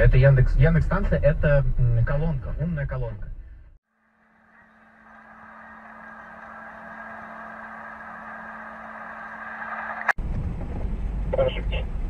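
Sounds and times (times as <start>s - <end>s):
low hum: 0.0s - 12.0s
road and engine noise in car: 4.4s - 12.0s.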